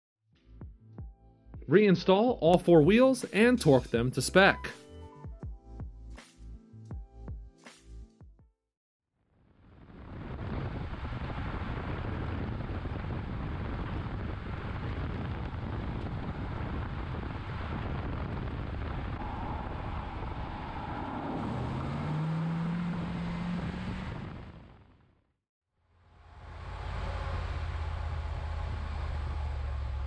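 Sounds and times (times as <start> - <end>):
car road and wind noise: 9.6 - 25.2, 26.0 - 30.0
low hum rising in pitch: 9.7 - 24.9, 26.0 - 30.0.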